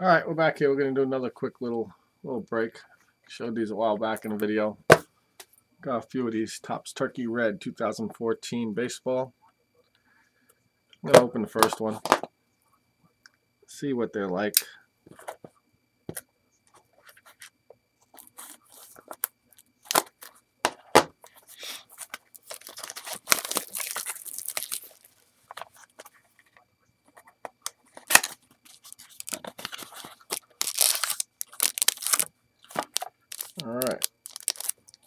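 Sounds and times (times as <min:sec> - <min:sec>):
plastic wrap crinkling: 0:22.0 - 0:25.9, 0:28.0 - 0:35.0.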